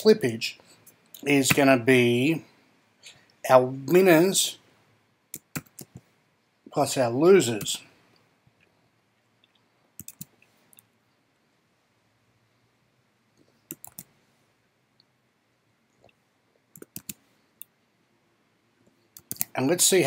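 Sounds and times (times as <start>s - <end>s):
computer mouse clicking: 5.3s - 6.1s, 9.4s - 10.8s, 13.4s - 14.1s, 16.7s - 17.7s, 18.9s - 19.5s.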